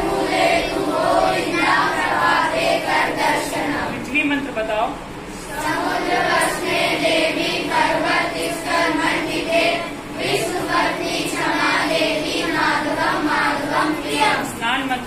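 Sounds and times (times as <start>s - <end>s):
children singing in unison: 0.0s - 3.9s, 5.5s - 14.5s.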